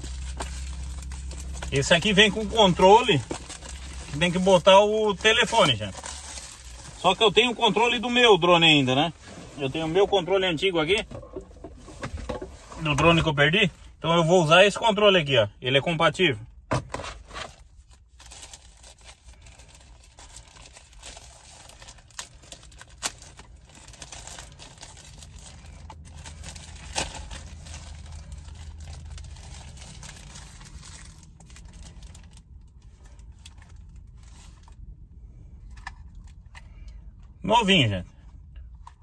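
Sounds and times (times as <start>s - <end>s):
plastic packaging crinkling: 0.0s - 8.9s, 18.0s - 34.8s
low steady hum: 0.0s - 39.0s.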